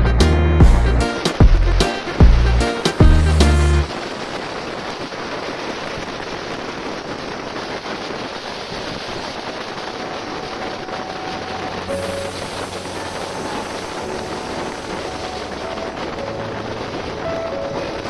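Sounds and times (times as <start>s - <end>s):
wind noise on microphone: 0.0s - 18.0s
road noise: 10.2s - 18.0s.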